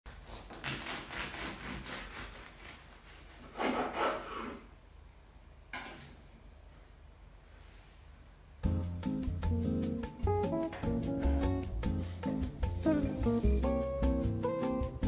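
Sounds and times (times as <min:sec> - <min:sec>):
bread knife sawing through bread: 0:00.1 - 0:04.6.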